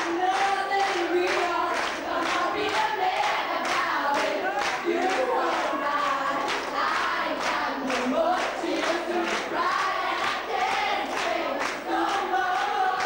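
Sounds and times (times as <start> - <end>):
person singing into a microphone: 0.0 - 6.5
crowd of young voices singing: 0.0 - 13.0.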